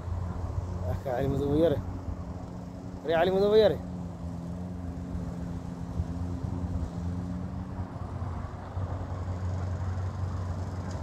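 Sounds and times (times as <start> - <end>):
engine idling hum: 0.0 - 11.0.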